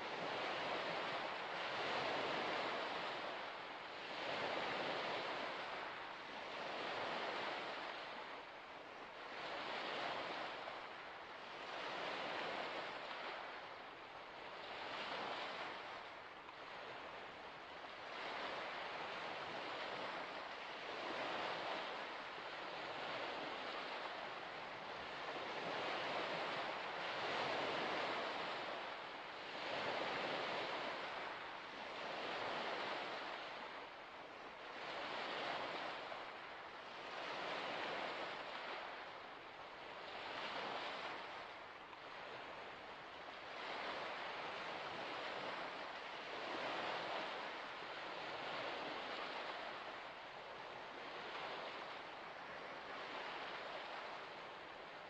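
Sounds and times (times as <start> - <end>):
small waves washing onto shore: 0.0 - 55.0.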